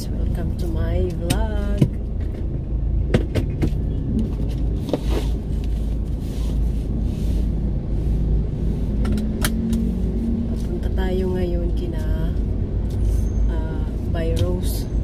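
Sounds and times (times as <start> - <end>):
rustle of shifting in seat: 3.6 - 8.2.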